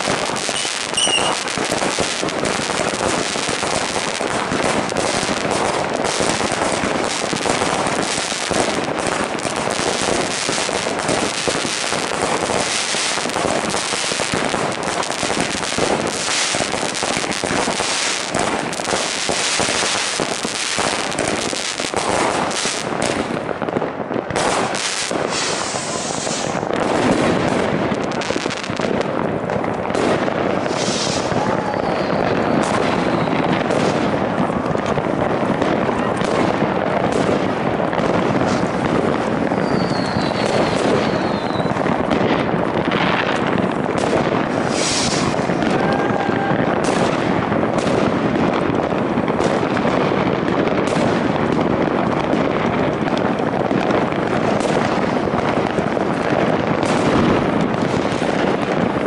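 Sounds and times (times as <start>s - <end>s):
fireworks bangs: 0.0s - 59.0s
fireworks crackling: 0.0s - 59.0s.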